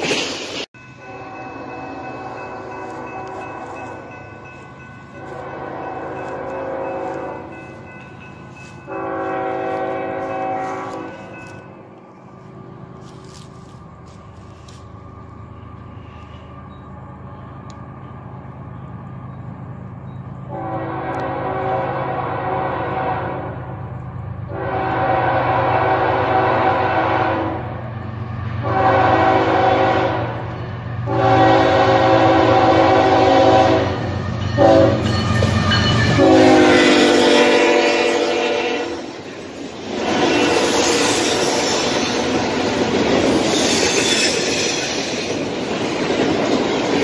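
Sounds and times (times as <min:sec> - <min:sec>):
train air horn blasts: 0:01.0 - 0:04.2, 0:05.1 - 0:07.7, 0:08.5 - 0:11.9, 0:20.5 - 0:27.8, 0:28.6 - 0:39.2, 0:39.9 - 0:42.4.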